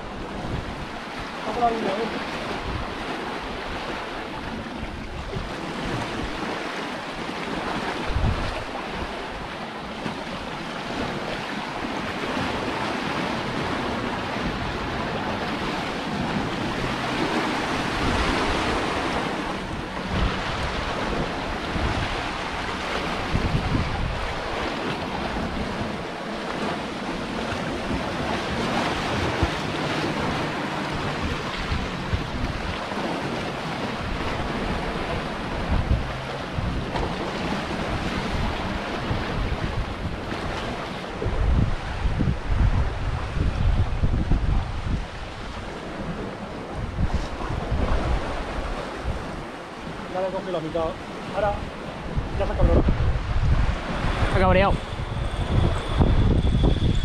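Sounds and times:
sea surf on rocky shore: 0.0s - 57.0s
wind buffeting microphone: 0.0s - 57.0s.

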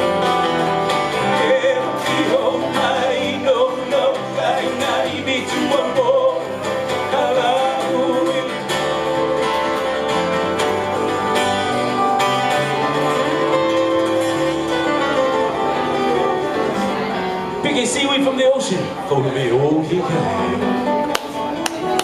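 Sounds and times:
live band playing: 0.0s - 22.0s
strummed acoustic guitar: 0.0s - 22.0s
person singing: 1.1s - 9.2s.

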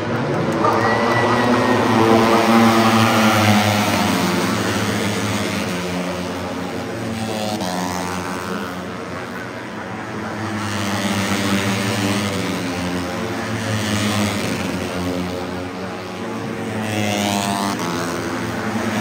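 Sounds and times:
steady low drone: 0.0s - 9.9s
racing motorcycle engines revving: 0.0s - 19.0s.

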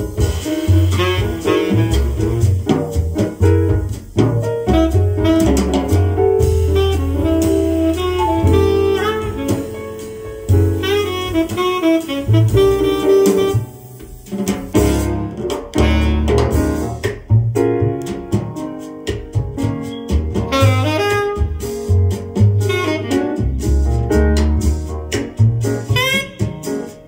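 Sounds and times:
jazz band playing: 0.0s - 27.0s
saxophone melody: 0.1s - 2.7s, 4.7s - 14.2s, 14.8s - 16.7s, 20.5s - 22.0s, 22.6s - 23.6s, 25.9s - 27.0s.

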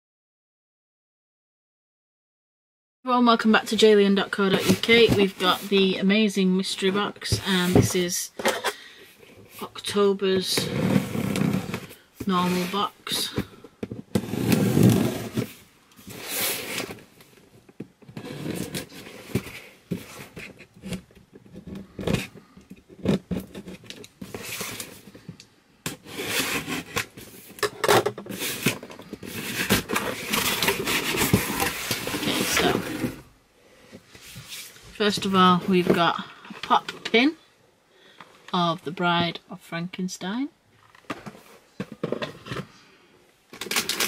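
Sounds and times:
cardboard scraping and tearing: 14.1s - 17.1s, 18.1s - 25.0s, 26.0s - 33.3s.

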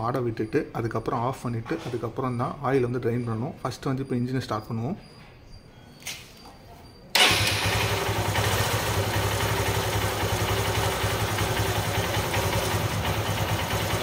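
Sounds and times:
motorcycle engine idling: 7.2s - 14.0s.

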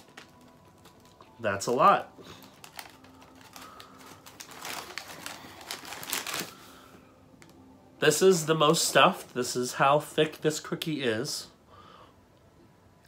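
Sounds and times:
plastic packaging crinkling: 0.0s - 7.6s.

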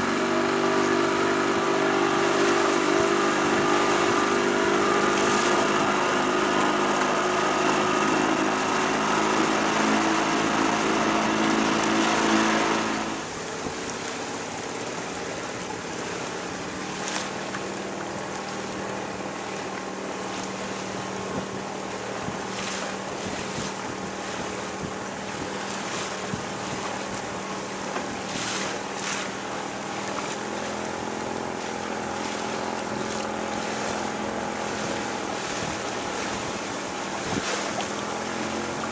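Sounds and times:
motorboat engine running: 0.0s - 38.9s
water splashes: 0.0s - 38.9s
water washing against hull: 0.0s - 38.9s
wind on microphone: 20.8s - 38.9s.

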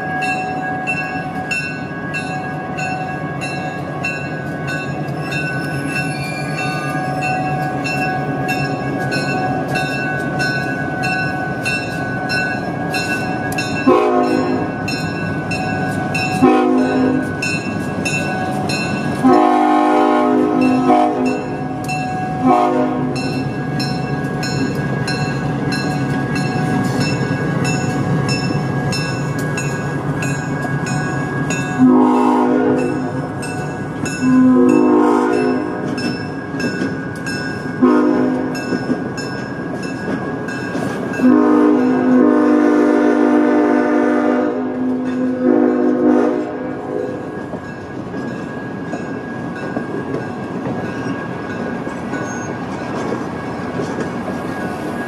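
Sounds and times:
crossing bell dinging: 0.0s - 55.0s
rumble of passing train cars: 0.0s - 55.0s
locomotive air horn blasts: 13.8s - 14.8s, 16.4s - 17.4s, 19.2s - 21.6s, 22.4s - 23.2s, 31.8s - 33.2s, 34.2s - 35.9s, 37.8s - 38.6s, 41.2s - 47.2s.

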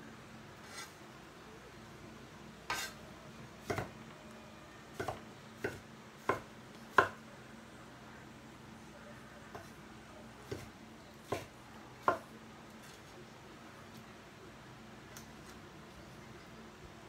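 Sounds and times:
knife chopping on wooden board: 3.6s - 3.9s, 5.0s - 7.2s, 10.5s - 12.2s.

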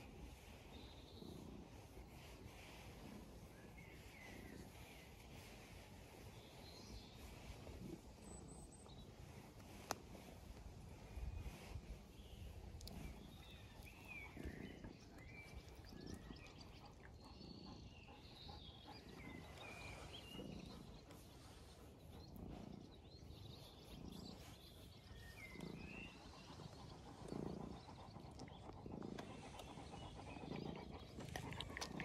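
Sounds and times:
birds chirping faintly: 0.0s - 32.0s
cat purring: 0.0s - 32.0s
dog licking: 27.2s - 32.0s.

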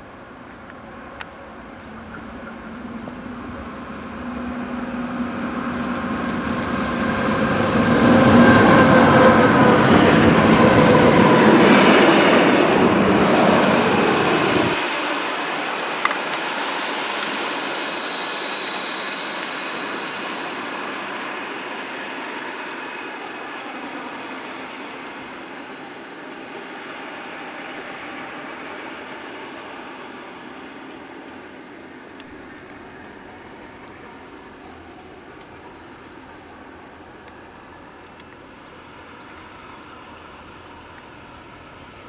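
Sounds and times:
diesel locomotive passing: 0.0s - 42.0s
locomotive rolling in: 0.2s - 26.0s
brief high squeal: 16.4s - 21.5s.

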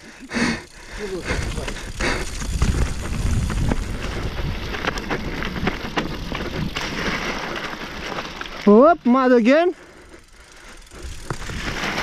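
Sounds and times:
bike rattling over bumps: 0.0s - 12.0s
tyres over dry leaves and soil: 0.8s - 12.0s
wind rumble on microphone: 1.2s - 6.8s.

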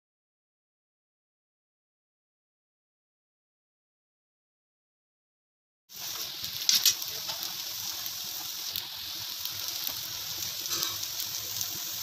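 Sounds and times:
food sizzling in oil: 5.9s - 12.0s.

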